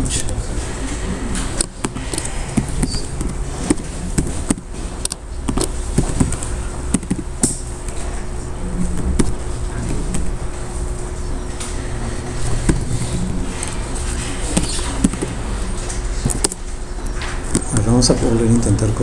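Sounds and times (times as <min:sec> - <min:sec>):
steady low hum: 0:00.0 - 0:19.0
keyboard key clicks: 0:01.5 - 0:07.6.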